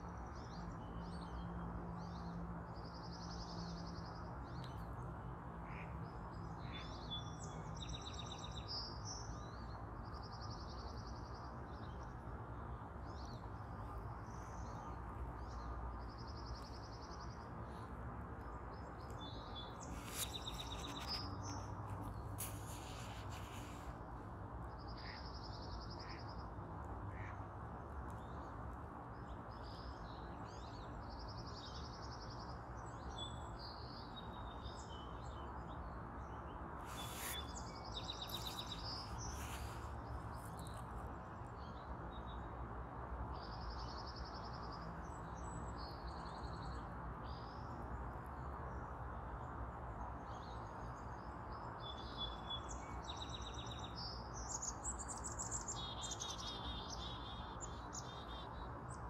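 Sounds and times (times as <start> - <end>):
brief hissing noises: 22.3 - 24.0, 36.8 - 37.6.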